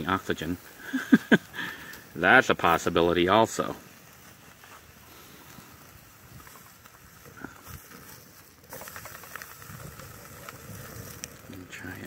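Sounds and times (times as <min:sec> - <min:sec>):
wood fire crackling and hissing: 0:00.0 - 0:12.0.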